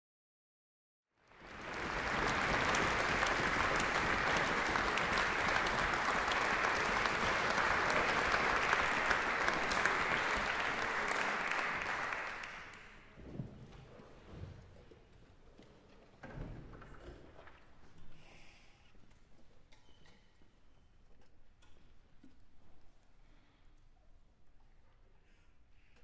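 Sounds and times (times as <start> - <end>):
audience applauding: 1.2 - 13.1.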